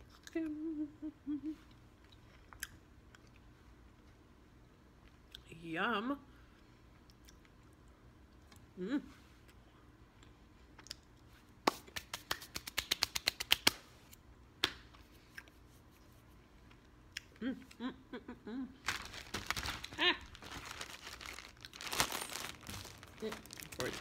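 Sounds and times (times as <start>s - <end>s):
person humming: 0.3s - 1.7s, 17.4s - 18.8s
plastic bag crinkling: 18.8s - 24.0s.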